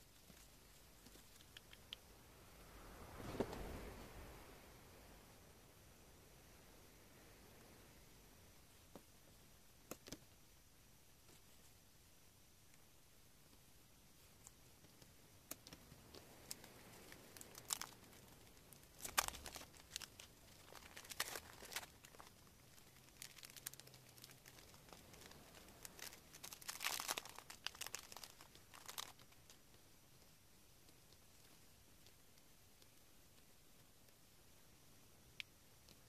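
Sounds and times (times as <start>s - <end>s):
paper being folded: 17.4s - 29.4s
plastic packet crinkling: 17.4s - 29.5s.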